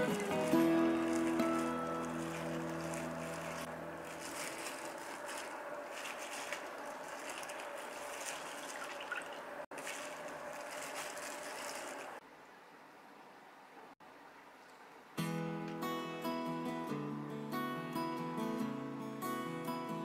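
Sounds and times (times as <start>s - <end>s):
water trickling and dripping: 0.0s - 12.2s.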